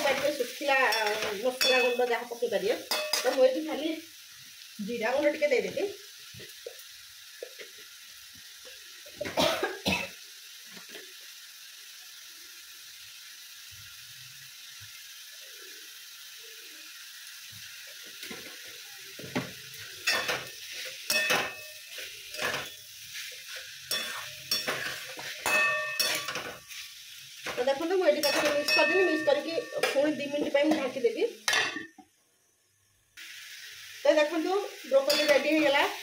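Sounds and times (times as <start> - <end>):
steel spatula scraping a pan: 0.0 - 2.1, 2.9 - 3.6, 19.8 - 31.9, 35.0 - 35.8
broccoli sizzling in a pan: 0.0 - 36.0.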